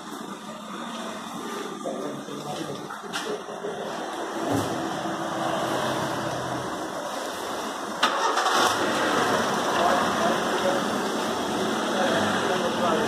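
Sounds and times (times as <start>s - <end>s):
car engine humming: 3.4s - 13.0s.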